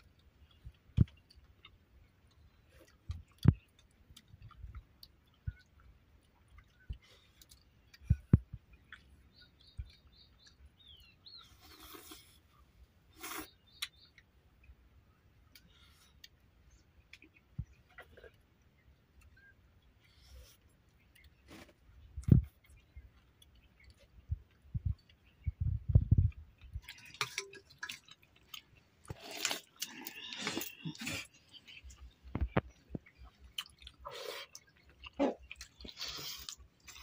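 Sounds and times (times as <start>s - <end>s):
chewing: 0.0s - 14.7s, 15.4s - 25.5s, 26.2s - 37.0s
bird chirping: 5.2s - 12.4s, 13.1s - 27.9s.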